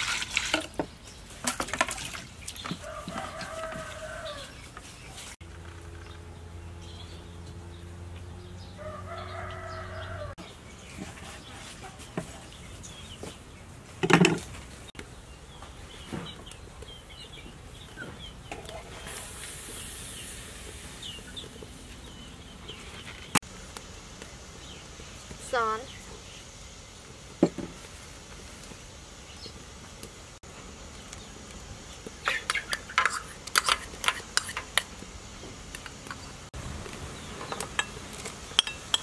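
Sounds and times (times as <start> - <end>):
chickens clucking and chirping: 2.0 - 23.4, 31.9 - 36.4
rooster crowing: 2.8 - 4.6, 8.6 - 10.4.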